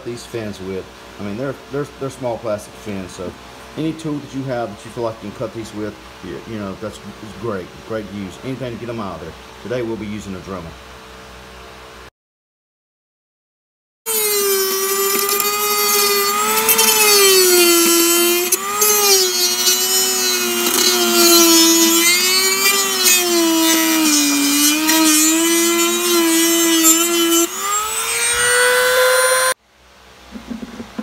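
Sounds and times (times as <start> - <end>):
rotary tool cutting plastic: 14.1 - 29.6.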